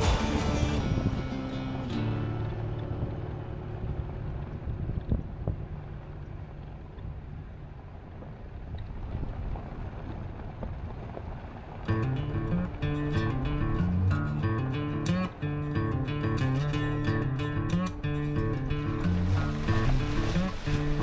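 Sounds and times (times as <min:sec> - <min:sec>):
background music: 0:00.0 - 0:03.1
vehicle driving rumble: 0:00.0 - 0:21.0.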